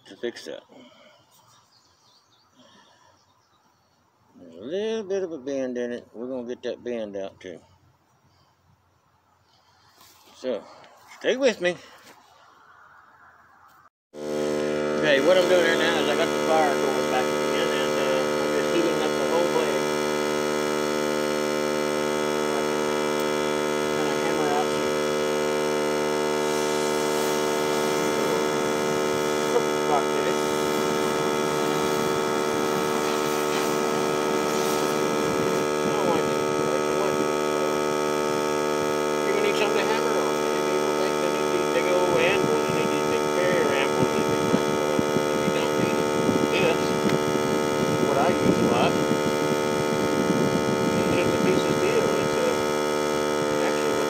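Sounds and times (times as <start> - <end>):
faint rustles and clicks: 9.4 - 11.2
electrical hum: 14.2 - 54.0.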